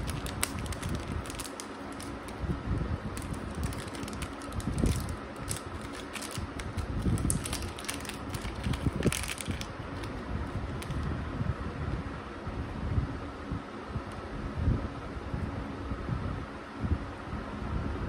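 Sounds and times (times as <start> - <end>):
plastic packet crinkling: 0.0 - 11.1
low background rumble: 0.0 - 18.0.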